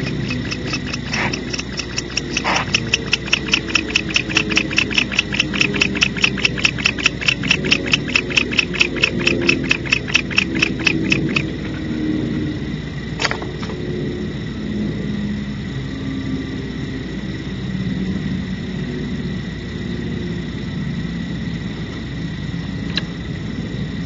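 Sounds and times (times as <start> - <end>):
short rasps: 0.0 - 12.0
rapid animal chirps: 0.0 - 12.1.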